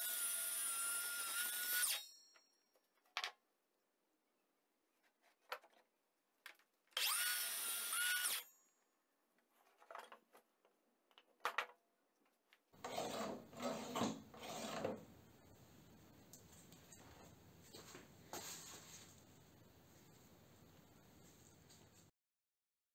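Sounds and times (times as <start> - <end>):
circular saw cutting wood: 0.0 - 2.1, 7.0 - 8.5
clicks and knocks of handling: 5.0 - 6.7, 9.4 - 12.6.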